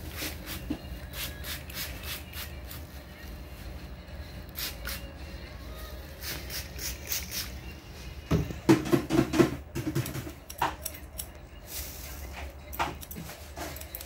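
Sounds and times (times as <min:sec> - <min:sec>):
comb through hair: 0:00.0 - 0:03.3, 0:04.5 - 0:05.2, 0:05.8 - 0:07.6, 0:10.0 - 0:14.0
scissors snipping hair: 0:04.5 - 0:05.1, 0:06.2 - 0:07.5, 0:10.0 - 0:11.4, 0:12.6 - 0:14.0.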